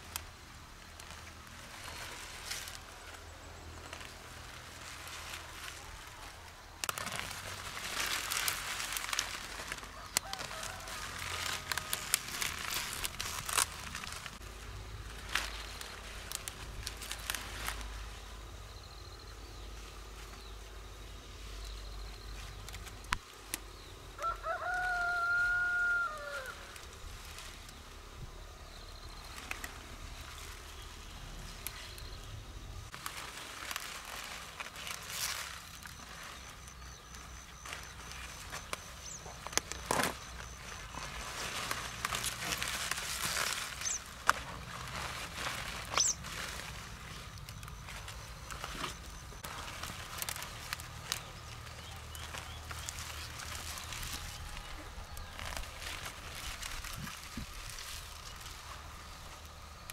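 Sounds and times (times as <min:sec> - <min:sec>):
leafy plants rustling: 0:00.0 - 0:59.9
rooster crowing: 0:09.8 - 0:12.2, 0:24.1 - 0:26.9.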